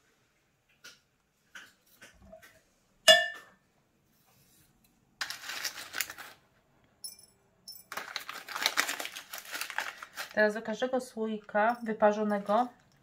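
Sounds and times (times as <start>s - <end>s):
kitchenware clinking: 3.1s - 3.6s, 7.0s - 8.3s, 11.4s - 12.8s
rustling: 4.1s - 6.6s, 7.9s - 10.6s.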